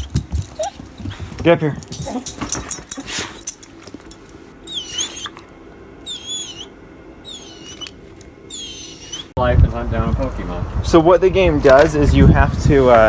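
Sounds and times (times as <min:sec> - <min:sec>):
small dog whining: 0:00.0 - 0:01.1, 0:04.6 - 0:09.3
leash and collar clicking: 0:00.0 - 0:05.5, 0:07.3 - 0:09.2.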